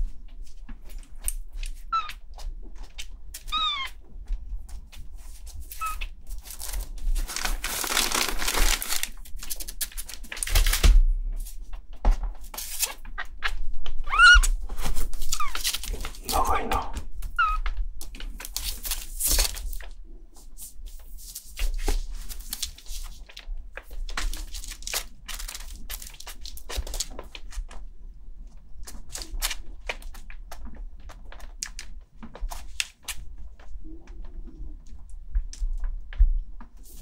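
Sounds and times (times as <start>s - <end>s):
rustling: 0.0s - 27.8s.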